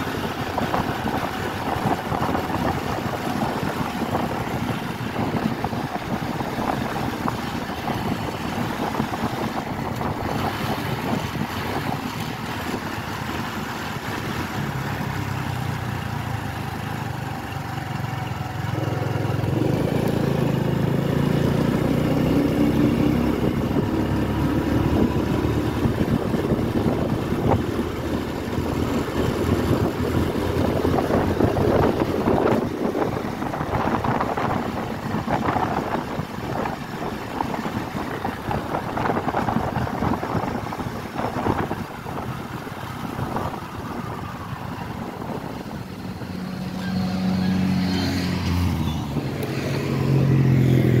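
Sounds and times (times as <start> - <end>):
wind buffeting microphone: 0.0 - 16.0, 18.7 - 51.0
motorcycle engine running: 0.0 - 51.0.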